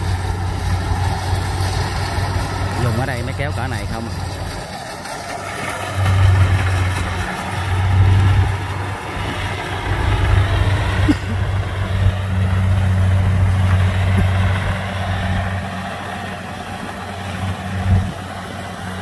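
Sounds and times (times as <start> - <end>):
carrier engine running close by: 0.0 - 19.0
distant combine harvester cutting: 0.0 - 19.0.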